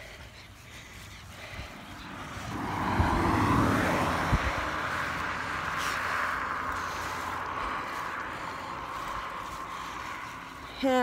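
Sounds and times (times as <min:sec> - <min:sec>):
vehicle tyre noise passing: 0:00.0 - 0:11.0.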